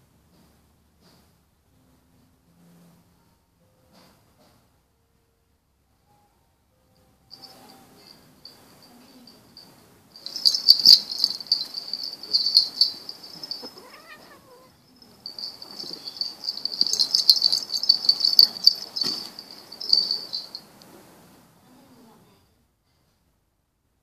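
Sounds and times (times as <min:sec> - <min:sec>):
cats wrestling in grass: 0:10.2 - 0:20.6
insects chirring: 0:10.2 - 0:20.8
cat call: 0:13.4 - 0:14.8.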